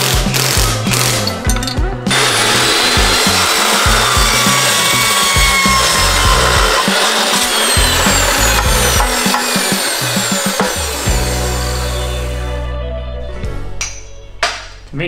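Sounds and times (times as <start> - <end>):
chop saw cutting steel: 2.1 - 12.4.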